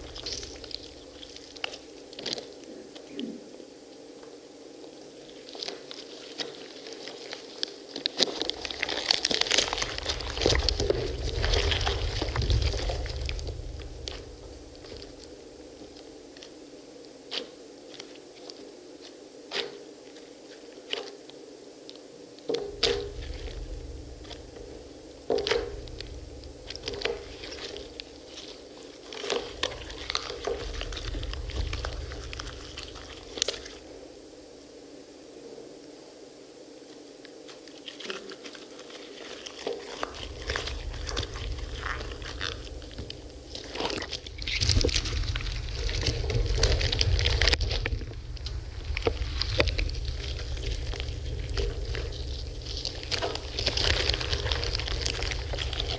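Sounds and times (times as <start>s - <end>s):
low rumble: 0.0s - 2.0s, 8.5s - 16.6s, 22.6s - 34.5s, 39.9s - 55.9s
hands squishing crushed fruit: 0.0s - 3.3s, 4.8s - 16.6s, 22.5s - 33.9s, 37.5s - 55.9s
small crackles and pops: 0.0s - 35.0s, 36.8s - 55.9s
faint steady hum: 0.0s - 55.9s.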